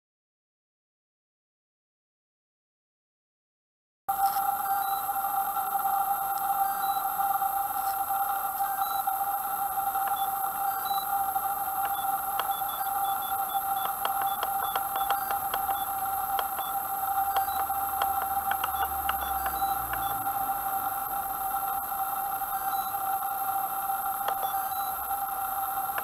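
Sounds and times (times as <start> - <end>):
electronic whine: 4.1 - 26.0
high electronic blips and clicks: 11.8 - 26.0.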